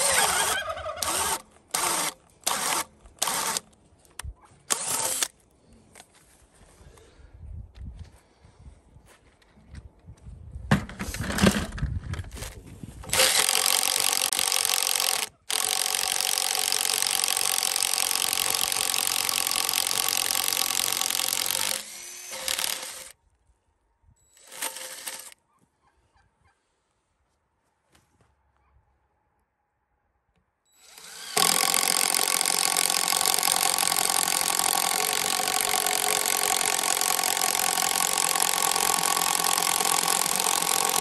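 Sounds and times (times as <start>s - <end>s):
impact driver driving into wood: 13.1s - 23.1s, 30.9s - 41.0s.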